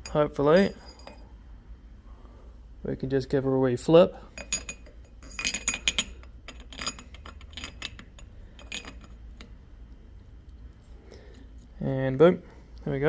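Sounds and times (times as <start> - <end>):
metal gear parts clinking: 4.3 - 9.2.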